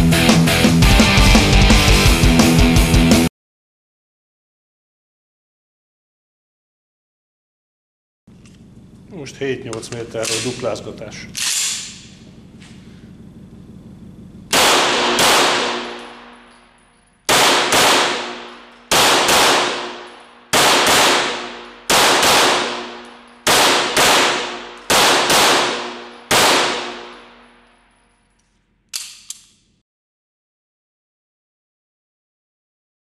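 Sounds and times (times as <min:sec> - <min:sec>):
pistol shots echoing indoors: 0:14.5 - 0:29.8.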